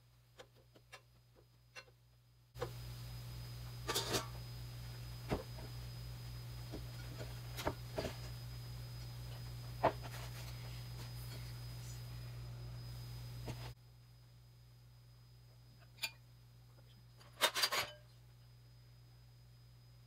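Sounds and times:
induction cooktop humming: 0:00.0 - 0:20.0.

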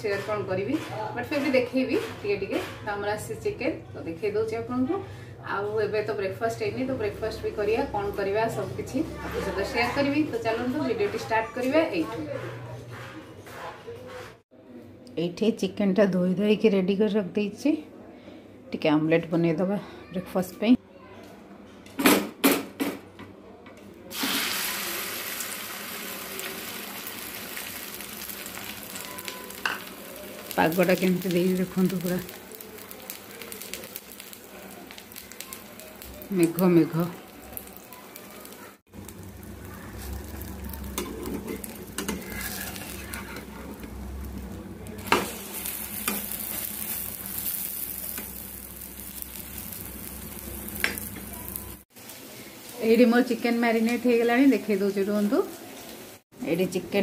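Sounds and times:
spatula scraping and tapping pan: 0:00.0 - 0:02.9, 0:40.9 - 0:44.0
egg sizzling in hot oil: 0:24.1 - 0:56.2.

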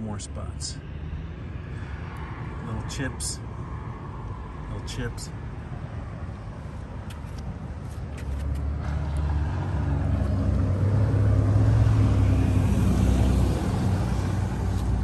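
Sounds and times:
vehicle engine rumble passing: 0:06.0 - 0:15.0.

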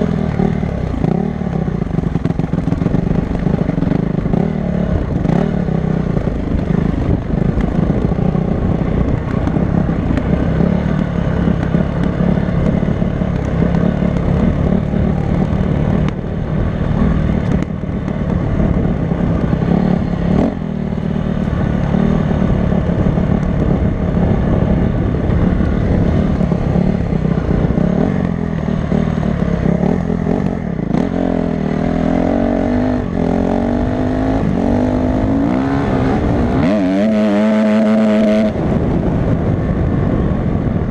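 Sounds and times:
dirt bike engine revving: 0:26.0 - 0:39.0.

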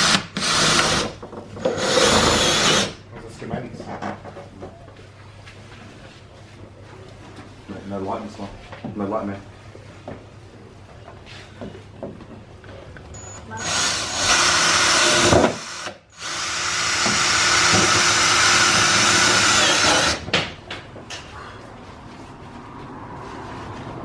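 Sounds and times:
cordless drill driving screws: 0:00.0 - 0:03.0, 0:13.6 - 0:20.2.

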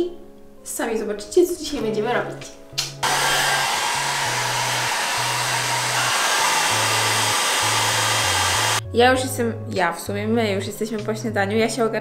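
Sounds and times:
hair dryer blowing: 0:03.0 - 0:08.8.

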